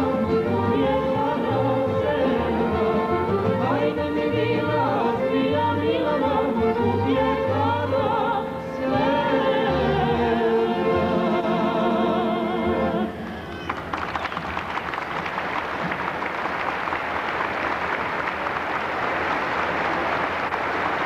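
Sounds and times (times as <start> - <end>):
man and woman singing duet: 0.0 - 13.3
folk orchestra with accordion: 0.0 - 13.7
applause: 13.4 - 21.0.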